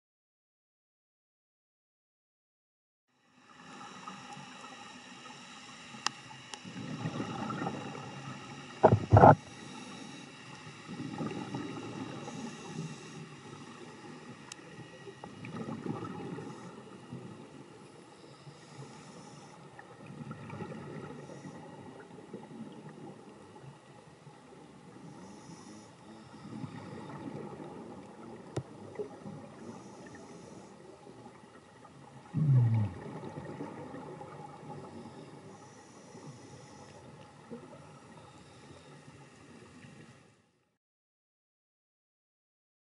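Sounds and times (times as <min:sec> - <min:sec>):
faint steady hum: 0:03.1 - 0:40.7
hissing inhalations through regulator: 0:03.6 - 0:11.1, 0:11.7 - 0:15.4, 0:17.9 - 0:19.8, 0:25.0 - 0:27.2, 0:29.5 - 0:30.9, 0:34.9 - 0:37.2
bubbling exhalations underwater: 0:08.8 - 0:09.4, 0:32.3 - 0:33.9.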